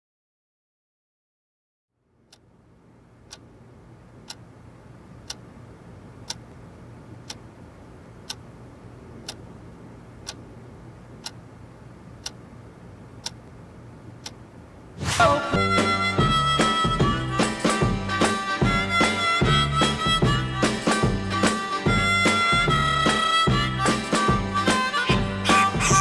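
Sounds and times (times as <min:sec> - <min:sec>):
low steady hum: 0:01.9 - 0:19.6
clock ticking: 0:02.2 - 0:14.8.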